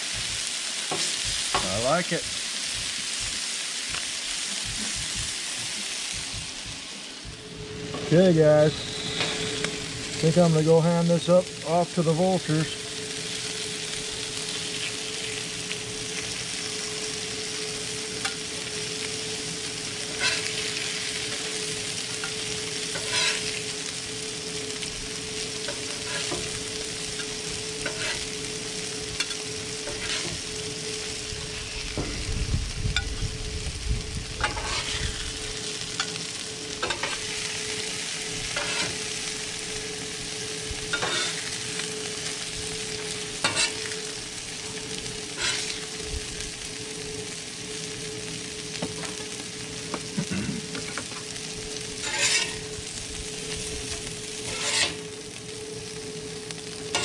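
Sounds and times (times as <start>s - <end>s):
fish sizzling on a griddle: 0.0s - 57.0s
steady hum: 0.0s - 57.0s
low rumble: 4.6s - 5.4s, 6.1s - 10.6s, 30.4s - 36.0s
metal spatula scraping steel: 20.1s - 22.3s, 22.9s - 23.7s, 25.7s - 26.6s, 27.2s - 28.4s, 29.2s - 30.8s, 34.4s - 35.2s, 36.8s - 37.3s, 38.5s - 39.0s, 40.9s - 41.5s, 43.4s - 44.0s, 45.3s - 45.9s, 52.0s - 52.8s, 54.4s - 55.1s.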